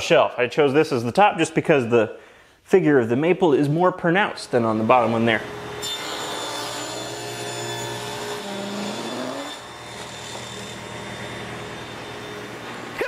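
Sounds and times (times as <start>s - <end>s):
table saw cutting wood: 4.3s - 13.0s.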